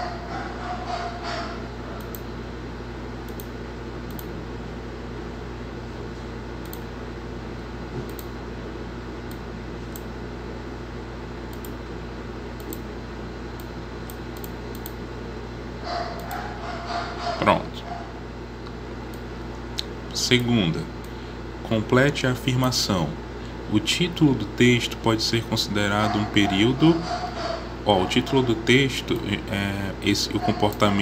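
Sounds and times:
electrical fan hum: 0.0s - 31.0s
computer keyboard clicks: 3.3s - 3.5s, 11.5s - 11.8s, 12.6s - 12.8s.

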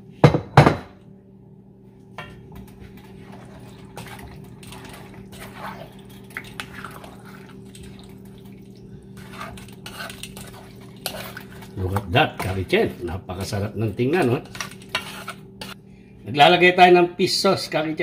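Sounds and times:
low hum: 0.0s - 16.5s
spoon stirring thick sauce: 2.6s - 15.8s
spoon scraping metal pan: 9.2s - 11.7s, 14.2s - 15.8s.

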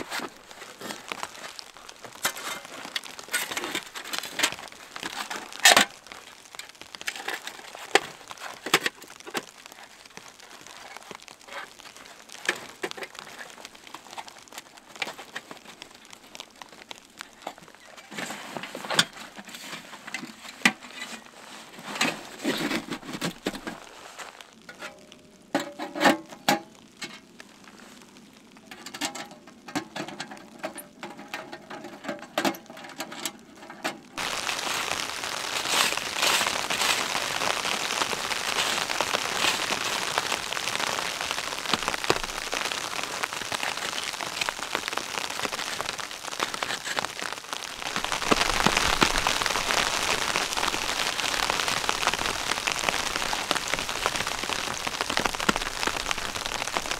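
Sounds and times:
nylon bag rustling: 0.0s - 24.7s, 34.1s - 56.9s.

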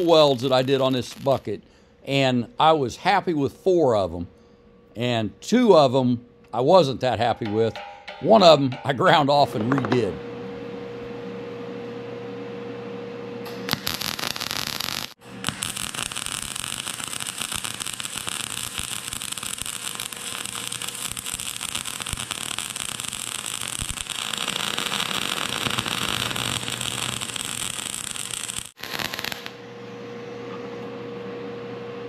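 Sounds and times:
welding arc crackling hiss: 0.0s - 1.6s, 13.4s - 29.6s
steady hum: 0.0s - 14.4s.

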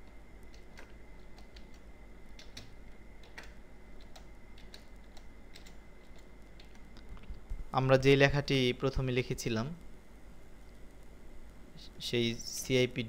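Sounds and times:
keyboard keystrokes: 0.0s - 7.6s
faint steady hum: 0.0s - 13.0s.

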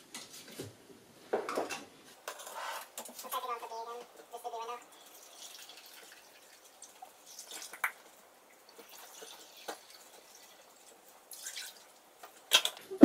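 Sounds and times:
water pouring into a cup: 4.9s - 12.0s.

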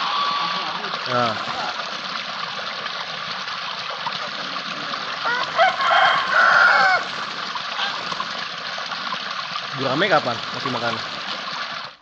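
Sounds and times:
fowl calling: 0.0s - 1.0s, 5.2s - 8.2s
running water rushing: 0.0s - 12.0s.

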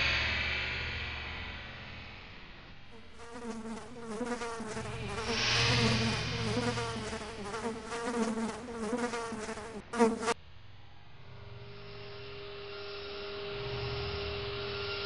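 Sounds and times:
fly buzzing: 3.0s - 10.4s.

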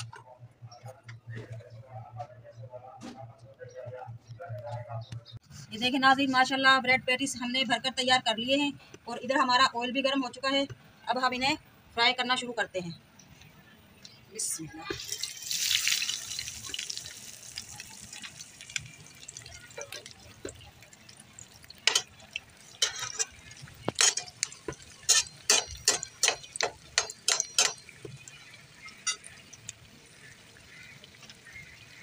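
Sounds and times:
patty sizzling in hot oil: 14.9s - 32.0s.

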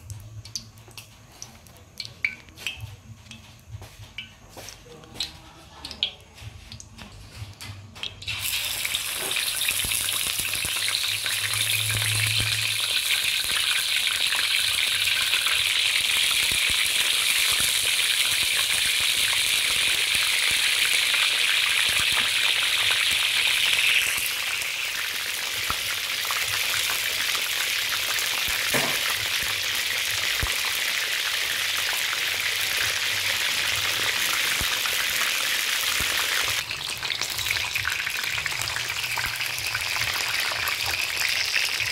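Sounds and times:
fish sizzling in hot oil: 8.0s - 41.9s.

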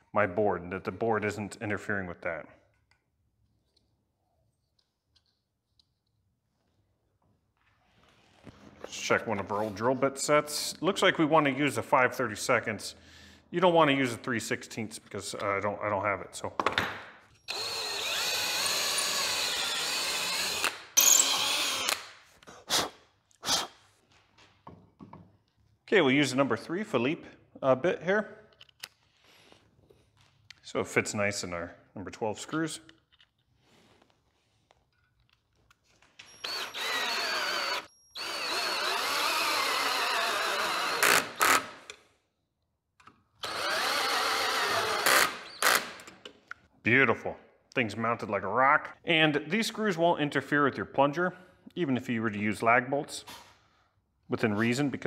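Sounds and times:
cordless drill boring into wood: 17.5s - 22.1s, 36.2s - 41.9s, 43.4s - 46.1s.

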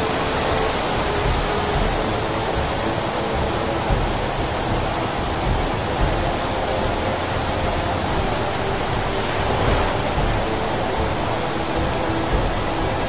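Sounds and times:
floodwater crashing against a wall: 8.2s - 13.0s.

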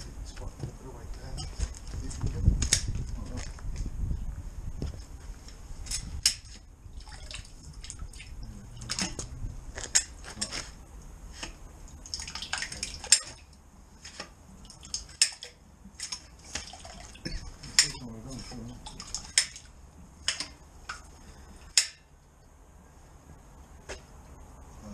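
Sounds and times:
sewage water splashing and sloshing: 5.9s - 10.5s, 11.3s - 21.1s.

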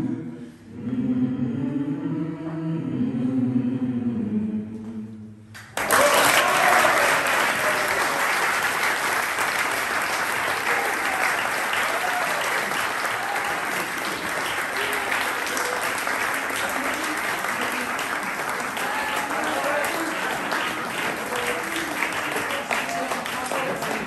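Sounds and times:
people applauding: 5.6s - 24.0s.

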